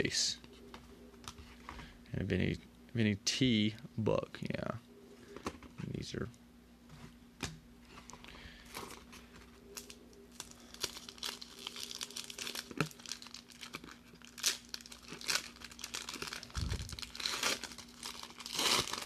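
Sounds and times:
foil wrapper crinkling: 8.7s - 19.0s
foil wrapper tearing: 9.8s - 19.0s.

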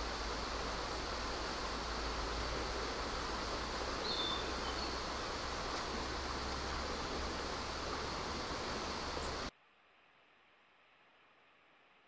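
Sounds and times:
river water rushing: 0.0s - 9.5s
faint hiss: 0.0s - 12.0s.

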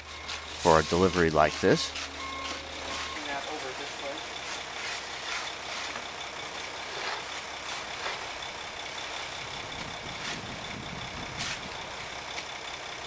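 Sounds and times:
concrete truck running: 0.0s - 13.0s
shovel scraping concrete: 4.5s - 6.0s.

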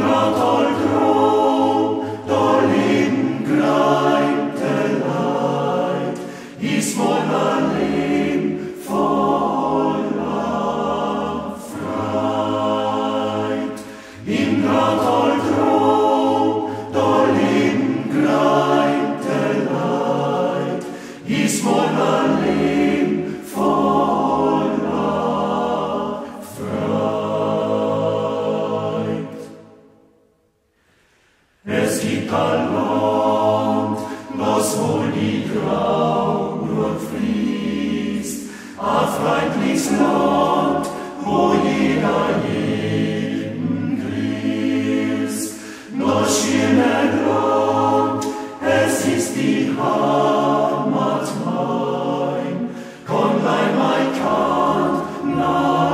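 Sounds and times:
male voice choir singing: 0.0s - 29.6s, 31.6s - 55.9s.

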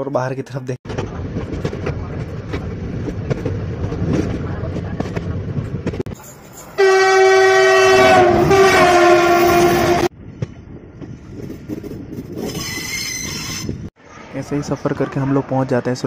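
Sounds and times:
train rumbling on rails: 0.8s - 16.0s
train horn: 6.8s - 10.1s.

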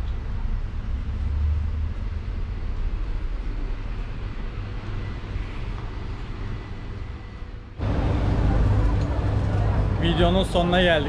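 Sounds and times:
low rumble of air conditioning: 0.0s - 11.0s
faint high hum: 2.3s - 11.0s.

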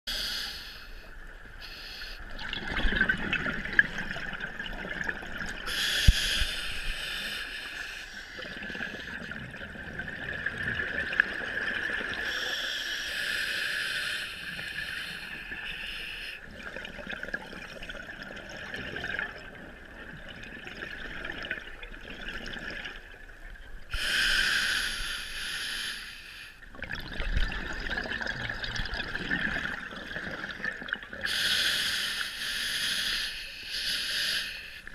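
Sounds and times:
diver breathing through regulator: 0.1s - 2.3s, 5.7s - 9.2s, 23.9s - 26.6s, 31.3s - 34.9s
exhaled bubbles gurgling: 2.2s - 7.0s, 8.3s - 12.5s, 16.4s - 24.0s, 26.6s - 31.4s.

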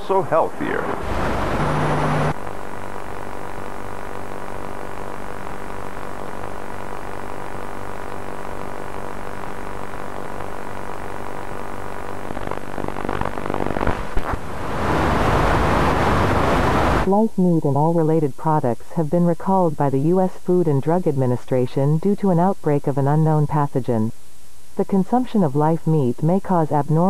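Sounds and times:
ominous low droning hum: 0.0s - 3.4s
loud hissing static: 0.0s - 18.0s, 22.3s - 27.0s.

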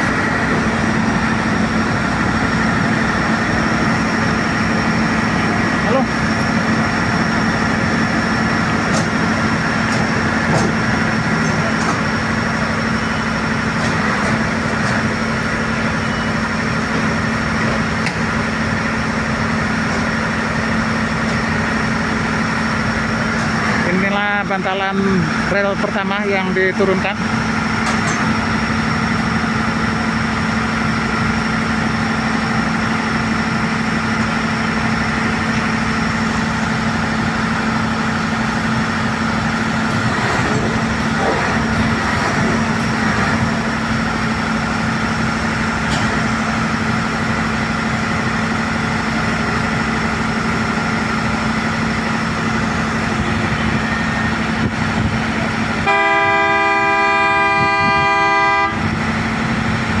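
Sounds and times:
machine engine running: 0.0s - 56.0s
horn sounding: 55.8s - 59.0s.

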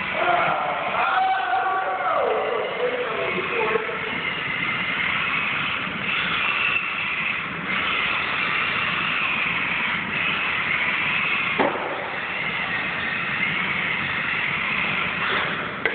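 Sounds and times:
electric motor whining: 0.0s - 15.9s.

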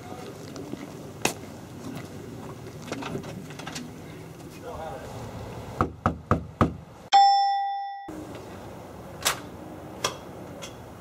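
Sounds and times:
bell ding: 7.1s - 8.2s.

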